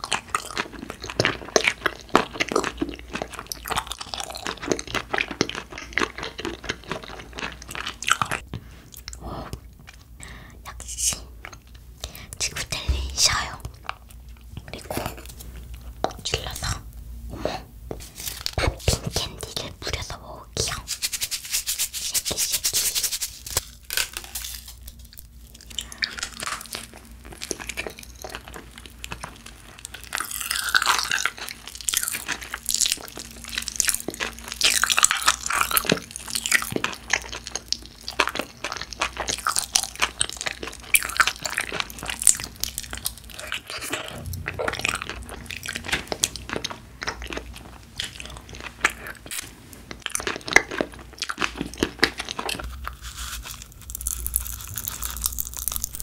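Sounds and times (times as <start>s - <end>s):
wet chewing: 0.0s - 10.2s, 22.0s - 56.0s
crunching bites: 50.1s - 56.0s.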